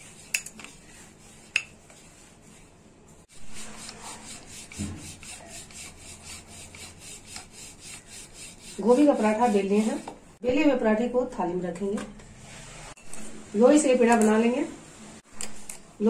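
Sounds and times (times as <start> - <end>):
rolling pin rubbing swish: 0.0 - 10.2.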